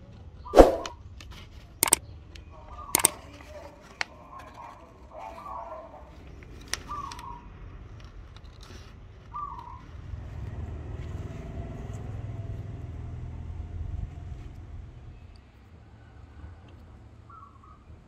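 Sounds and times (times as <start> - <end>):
sharp click: 0.6 - 1.0.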